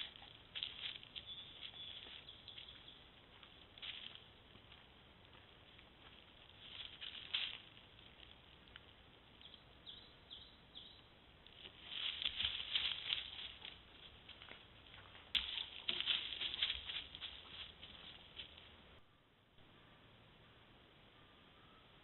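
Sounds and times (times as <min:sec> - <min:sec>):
dog rustling in dry leaves: 0:11.6 - 0:18.7.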